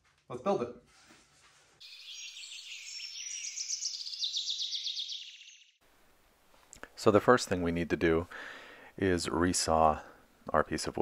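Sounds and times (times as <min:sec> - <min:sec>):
songbird chirping and trilling: 0:01.8 - 0:05.8.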